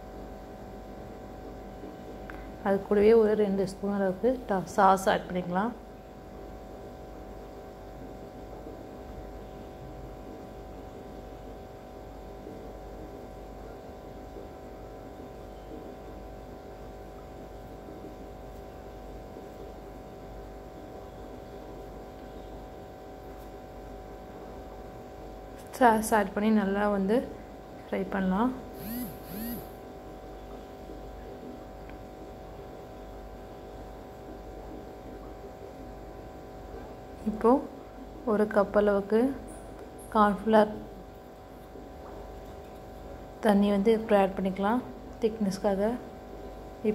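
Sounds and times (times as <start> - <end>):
electrical hum: 0.0 - 46.9.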